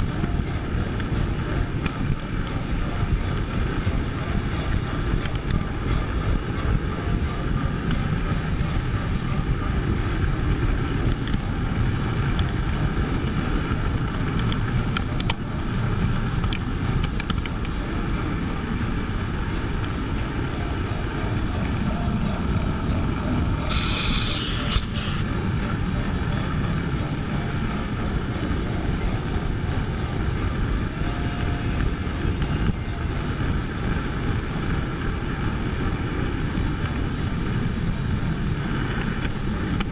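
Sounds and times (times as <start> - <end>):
brief high hiss: 23.7 - 25.2
model train wheels rumbling on rail: 23.7 - 25.2.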